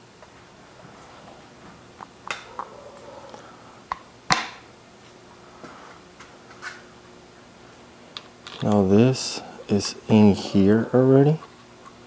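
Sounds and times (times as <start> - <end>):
light clicks and clinks of parts: 8.2 - 8.9.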